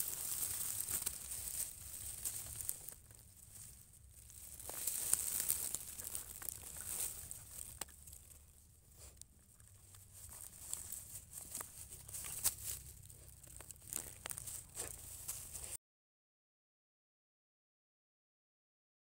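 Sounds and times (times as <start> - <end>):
dry straw crackling: 0.0 - 15.8
puppy chewing with crunching clicks: 0.3 - 15.7.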